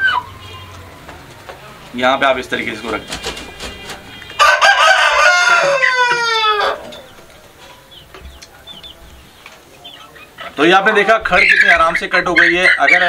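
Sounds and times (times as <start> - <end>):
rooster crowing: 3.3 - 7.4.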